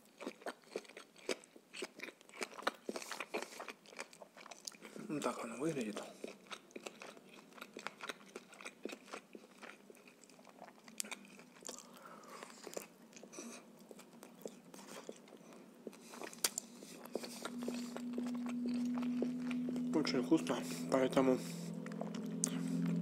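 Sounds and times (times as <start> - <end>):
close biting and chewing: 0.0 - 23.0
low steady hum: 4.6 - 23.0.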